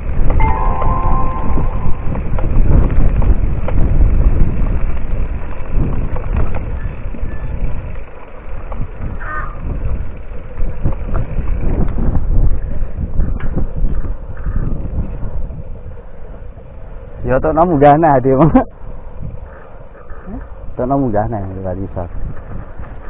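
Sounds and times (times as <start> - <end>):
wind rumbling on microphone: 0.0 - 23.0
bike knocks and rattles: 2.3 - 7.9
brief bike squeak: 6.8 - 7.6.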